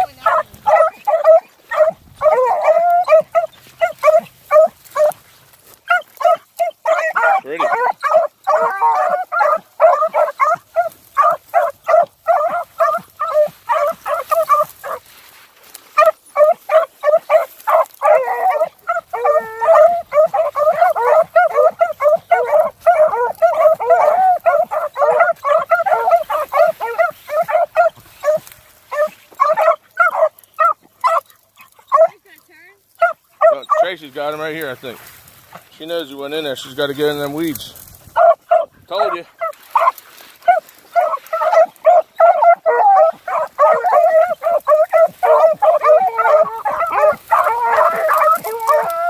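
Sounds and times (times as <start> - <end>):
dogs baying and yelping: 0.0 - 34.7, 36.4 - 49.0.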